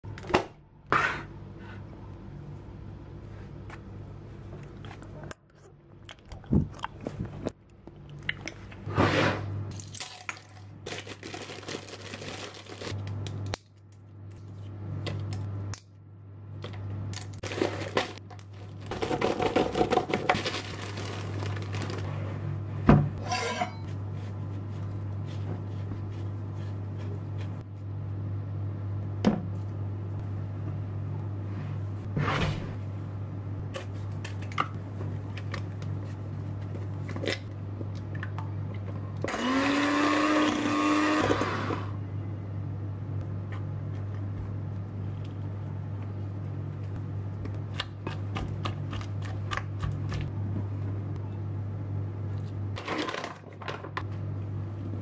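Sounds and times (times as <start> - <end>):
steady low hum: 0.0 - 11.0, 12.9 - 39.3, 41.8 - 52.8
plastic bag rustling: 9.9 - 13.0, 17.4 - 22.4.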